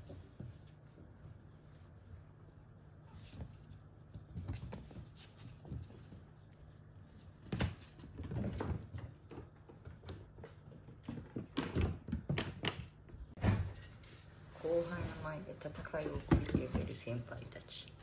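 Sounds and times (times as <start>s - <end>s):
kitten paws pattering on floor: 0.0s - 12.2s.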